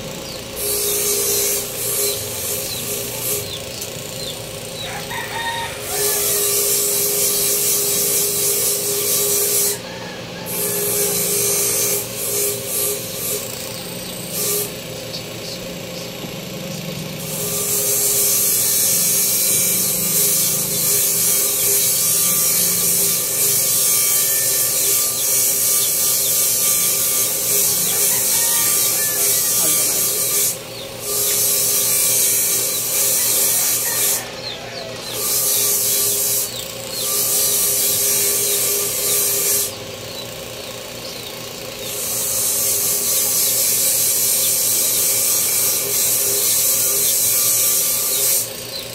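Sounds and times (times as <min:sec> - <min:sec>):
power tool motor whine: 0:00.0 - 0:48.9
rough hiss of tool on wood: 0:17.4 - 0:39.7.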